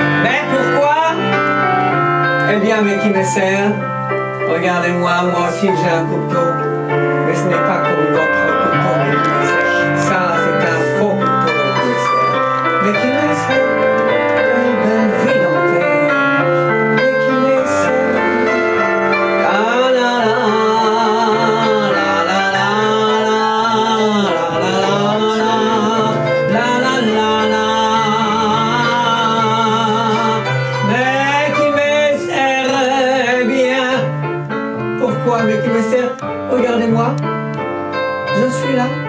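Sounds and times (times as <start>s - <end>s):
keyboard accompaniment: 0.0s - 39.0s
person singing with vibrato: 4.5s - 34.3s.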